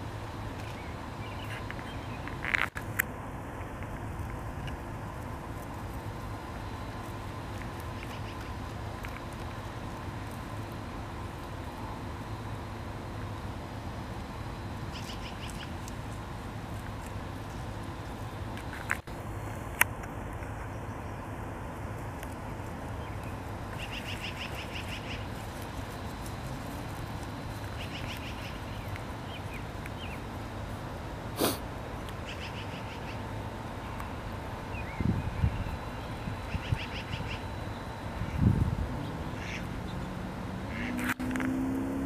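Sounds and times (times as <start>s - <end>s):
background hiss: 0.0s - 42.0s
beaver chewing grass: 1.4s - 20.8s, 21.6s - 32.3s.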